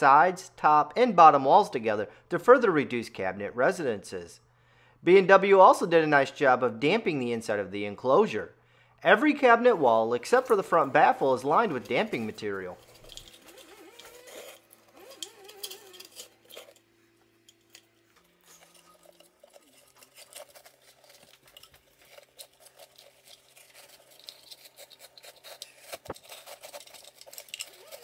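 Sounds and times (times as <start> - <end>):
rustling of stuffing: 10.2 - 28.0.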